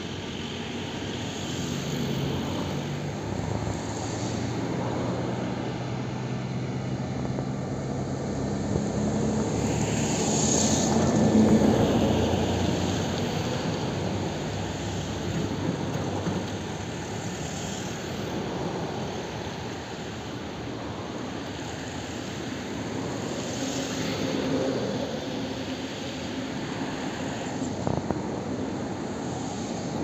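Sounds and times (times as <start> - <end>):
jet engines roaring: 0.0 - 30.0.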